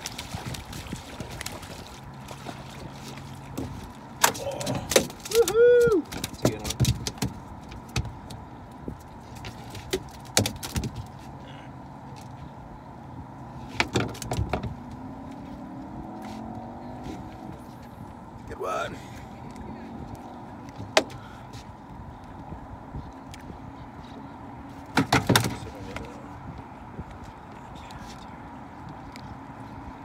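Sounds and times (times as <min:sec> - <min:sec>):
knocks and thumps on boat deck: 0:06.1 - 0:08.4, 0:09.5 - 0:11.1, 0:13.7 - 0:14.8, 0:24.9 - 0:26.0.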